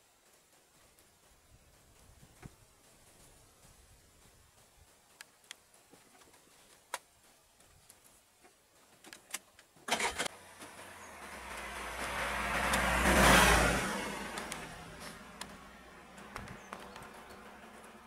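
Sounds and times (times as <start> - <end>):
vehicle passing by: 10.3 - 18.0.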